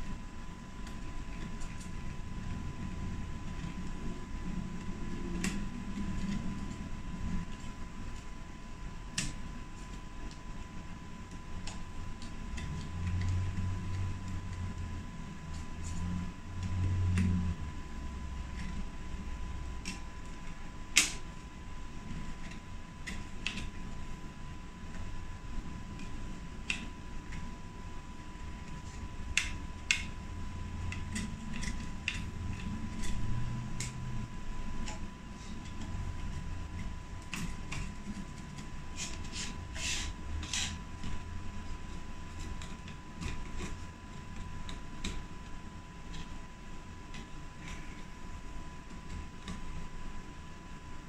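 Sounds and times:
steady low hum: 0:00.0 - 0:51.0
screwdriver scraping metal: 0:38.9 - 0:40.8.

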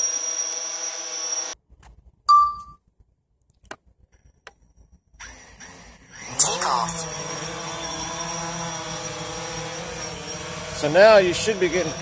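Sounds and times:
drone propellers humming: 0:05.4 - 0:12.0.

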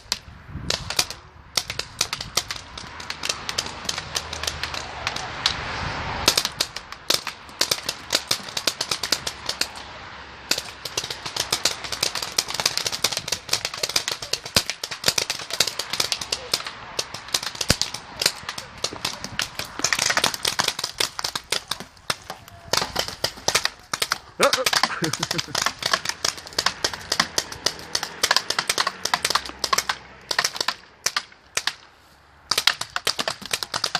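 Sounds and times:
paintball markers firing: 0:00.0 - 0:05.6, 0:06.2 - 0:09.8, 0:10.5 - 0:31.9, 0:32.5 - 0:33.9.

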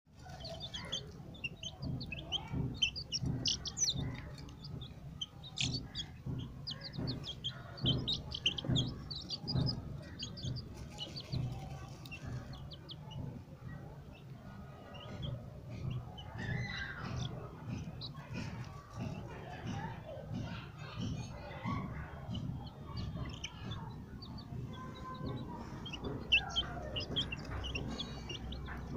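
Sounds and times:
chicks peeping: 0:00.1 - 0:28.9
soft low thuds: 0:00.2 - 0:28.9.

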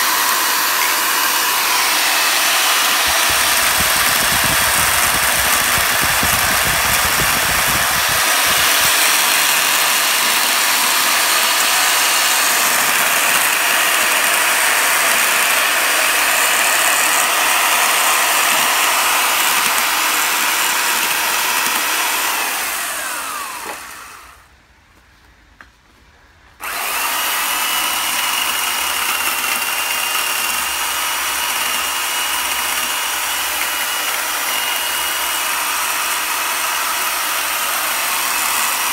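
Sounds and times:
carving tool buzzing into wood: 0:00.0 - 0:24.3, 0:26.6 - 0:38.9.

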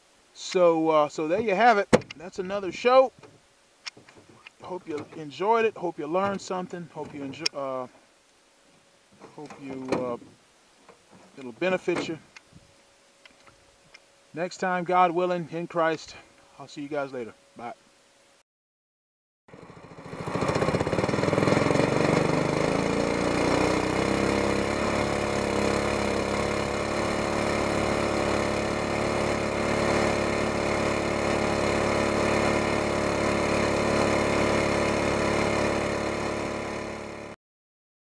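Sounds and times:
outboard boat engine running: 0:04.2 - 0:07.6, 0:19.5 - 0:37.4.

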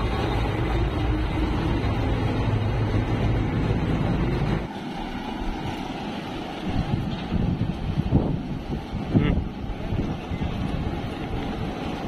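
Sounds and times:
combine harvester engine rumble: 0:00.0 - 0:12.0
wind noise on microphone: 0:05.3 - 0:12.0.

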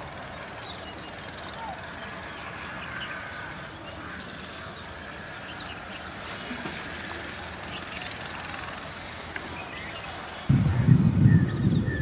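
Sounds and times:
outdoor background noise: 0:00.0 - 0:12.0
birds chirping: 0:07.0 - 0:12.0.

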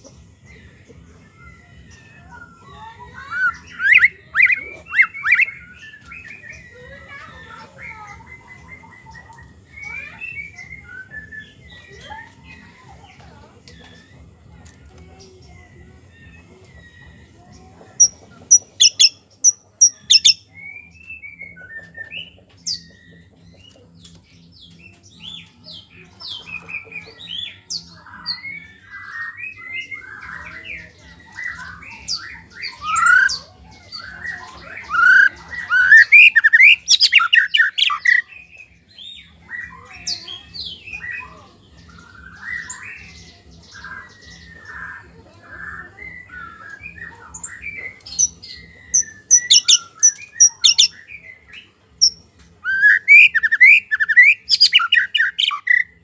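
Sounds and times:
bird singing whistled phrases: 0:02.0 - 0:06.8, 0:08.2 - 0:11.7, 0:19.8 - 0:23.0, 0:31.4 - 0:38.3, 0:45.6 - 0:51.4, 0:52.0 - 0:55.9
rapid high bird chattering: 0:03.2 - 0:05.9, 0:18.0 - 0:20.5, 0:26.2 - 0:41.3, 0:41.9 - 0:51.3, 0:52.0 - 0:56.0.

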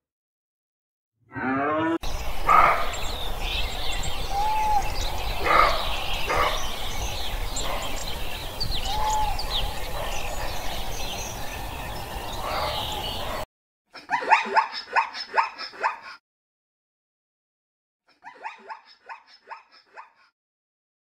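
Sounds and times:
birds chirping and calling: 0:01.4 - 0:13.4.

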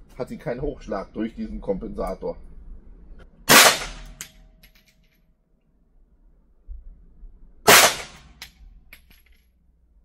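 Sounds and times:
pistol shot: 0:03.5 - 0:04.2, 0:07.7 - 0:08.4.

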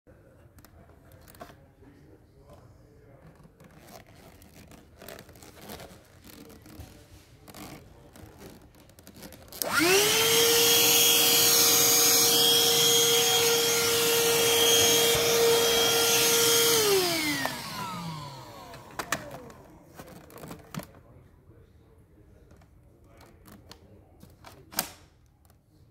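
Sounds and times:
handheld vacuum motor whining: 0:09.1 - 0:20.9.

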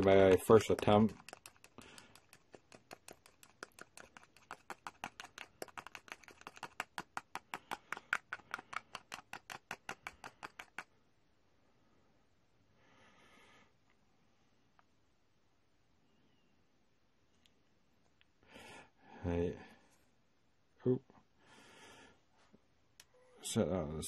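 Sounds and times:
metal rod ticking against plastic cup: 0:00.0 - 0:10.9.

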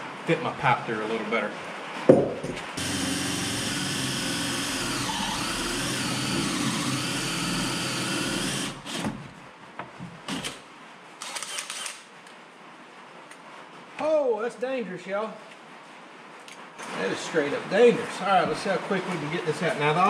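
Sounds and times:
knocks: 0:02.1 - 0:02.7
drill cutting through wood: 0:02.8 - 0:09.2.

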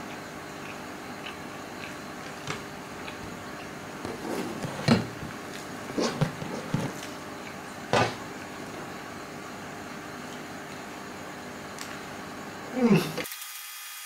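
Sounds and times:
steady low hum: 0:00.0 - 0:13.2
person slurping and chewing noodles: 0:00.6 - 0:07.6.

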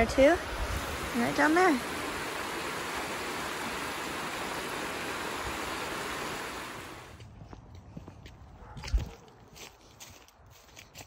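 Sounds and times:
water rushing over weir: 0:00.0 - 0:07.2.

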